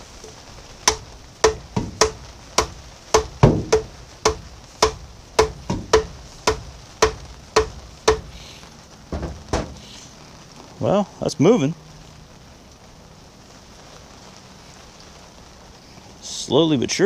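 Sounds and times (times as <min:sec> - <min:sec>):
hammer striking metal screw: 0:00.9 - 0:08.3.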